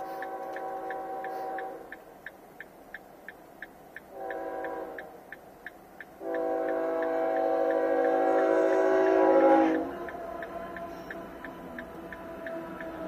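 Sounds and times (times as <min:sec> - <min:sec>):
locomotive horn blasts: 0:00.0 - 0:02.0, 0:04.1 - 0:05.1, 0:06.2 - 0:13.0
crossing bell ticking: 0:09.8 - 0:13.0.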